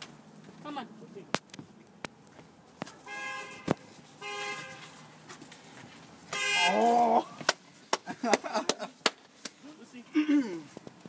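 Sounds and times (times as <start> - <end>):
horn blasts: 3.0 - 5.0, 6.3 - 7.0.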